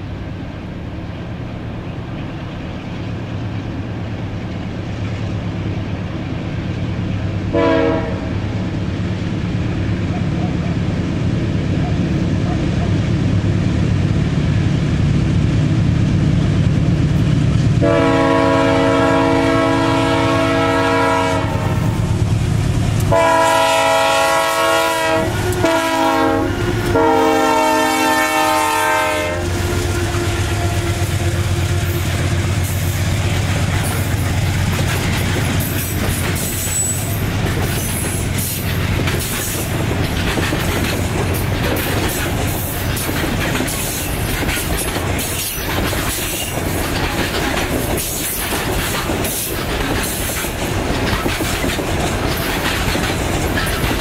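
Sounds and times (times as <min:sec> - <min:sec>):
diesel locomotive rumble: 0:00.0 - 0:54.0
train horn blasts: 0:07.5 - 0:08.4, 0:17.8 - 0:22.2, 0:23.0 - 0:32.8
wagons clattering over rail joints: 0:30.5 - 0:54.0.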